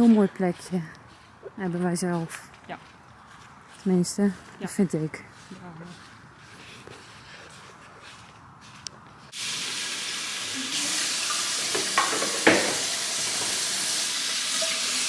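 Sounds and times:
tap water running into sink: 9.4 - 15.0
pan and dishes clinking: 11.7 - 13.6.

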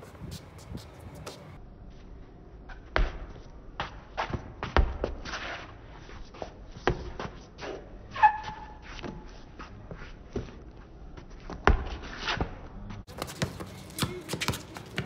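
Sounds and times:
shoes scuffing on pavement: 0.0 - 1.6, 13.1 - 15.0
basketball bouncing on concrete: 3.0 - 5.2, 6.8 - 7.3, 11.5 - 15.0
shoe squeak: 8.1 - 9.2.

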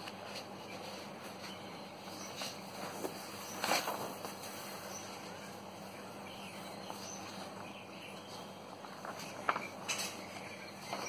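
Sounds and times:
paper notes handled on a table: 0.0 - 4.9, 8.7 - 11.0
faint low hum: 0.0 - 11.0.

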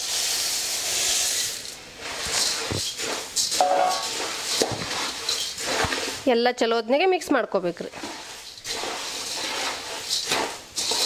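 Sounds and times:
puffed rice poured into pan: 0.0 - 6.3, 7.9 - 11.0
ladle scraping and knocking pan: 2.0 - 6.2, 7.9 - 11.0.

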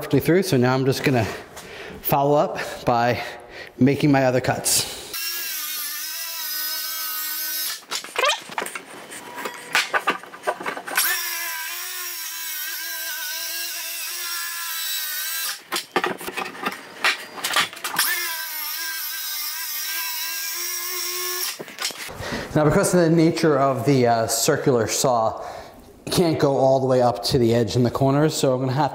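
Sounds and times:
circular saw cutting wood: 5.1 - 7.9, 10.8 - 15.9, 17.9 - 21.6.

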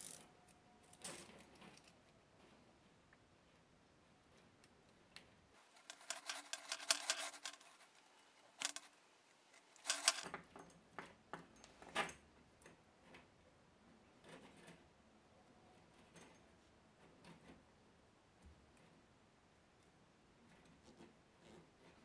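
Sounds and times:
metal hose sheath rattling: 5.6 - 9.0, 9.7 - 10.4
screwdriver clicking and scraping metal: 5.6 - 10.6.

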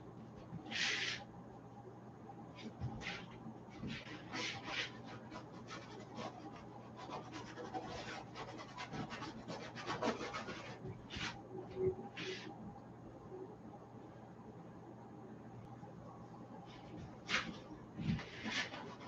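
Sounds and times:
paintbrush scrubbing on canvas: 0.7 - 1.2, 2.6 - 11.4, 16.7 - 19.0.

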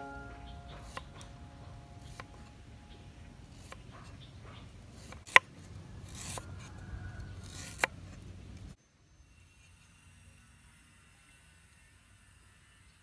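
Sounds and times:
knife blade scraping: 0.0 - 2.6, 3.4 - 8.1.

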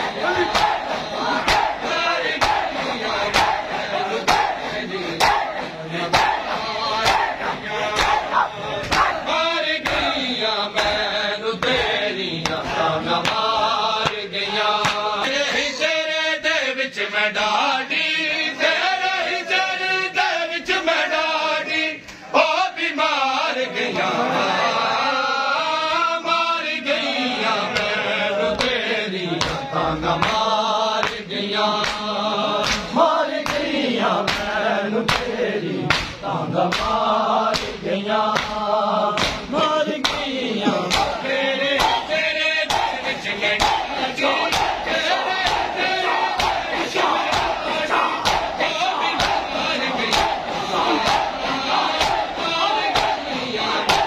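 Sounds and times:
rhythmic chest-beating slaps: 0.0 - 15.5, 27.7 - 54.0
men chanting a lament: 0.0 - 54.0.

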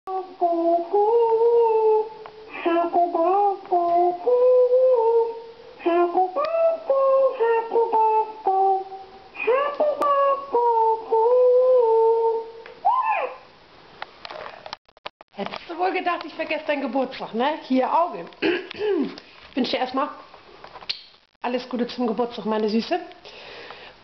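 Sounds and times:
high voice singing slowly: 0.1 - 13.5.

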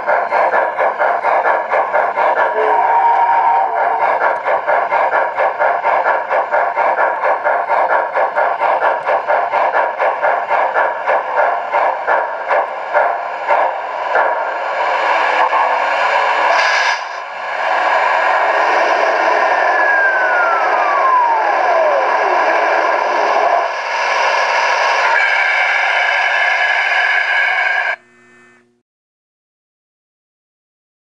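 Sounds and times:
steam hiss: 0.0 - 27.9
model steam locomotive chuffing: 0.0 - 28.0.

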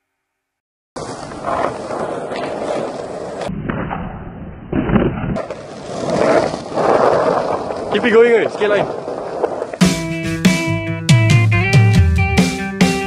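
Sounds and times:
skateboard clacking on ground: 1.0 - 3.5
skateboard wheels rolling on tiles: 1.0 - 3.5, 4.8 - 10.0.

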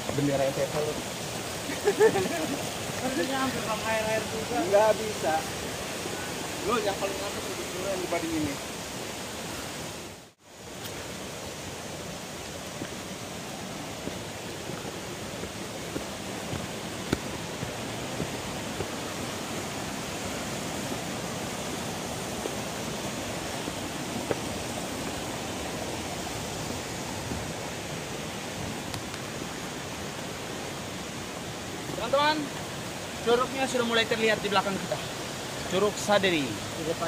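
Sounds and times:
water rushing: 0.0 - 37.0
footsteps on dirt trail: 12.7 - 20.0, 22.3 - 28.0.

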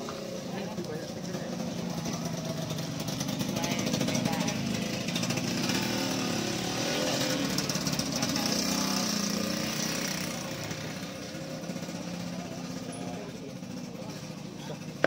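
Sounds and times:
small engine running: 0.0 - 15.0.

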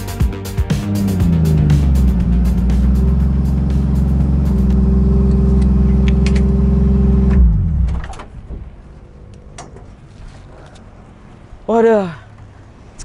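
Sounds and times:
engine winding down: 0.6 - 8.4
car engine idling loudly: 0.7 - 8.2.

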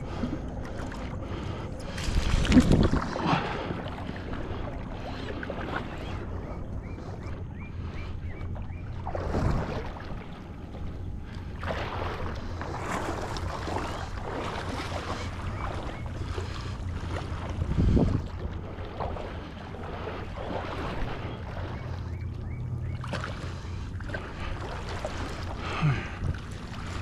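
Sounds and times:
low steady rumble: 0.0 - 27.0
water sloshing around a boat: 0.0 - 27.0
wind buffeting microphone: 1.2 - 5.1, 11.0 - 21.6.

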